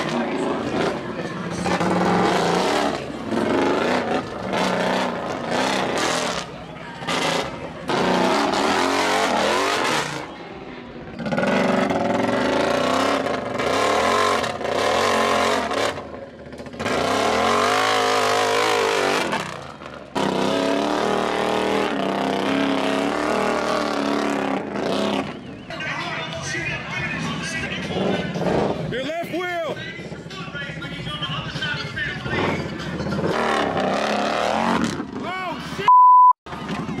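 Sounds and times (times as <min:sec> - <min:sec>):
atv engine revving hard: 0:00.0 - 0:10.3, 0:11.1 - 0:25.4, 0:27.9 - 0:28.9, 0:32.2 - 0:35.2.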